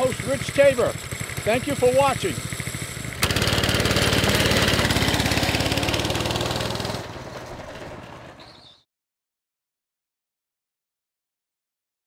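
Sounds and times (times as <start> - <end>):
go-kart engine running: 0.0 - 8.8.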